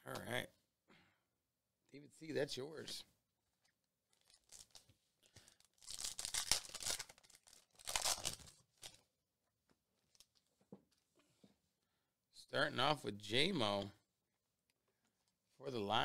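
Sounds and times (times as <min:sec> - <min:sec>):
foil wrapper tearing and crinkling: 0:04.1 - 0:09.0.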